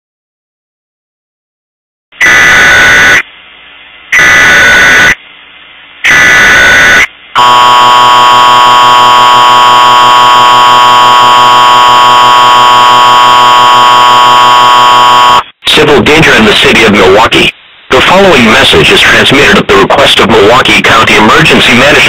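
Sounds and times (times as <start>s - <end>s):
digital data squeal bursts: 2.2s - 3.2s, 4.2s - 5.2s, 6.1s - 7.6s
two-tone alert signal: 6.8s - 15.4s.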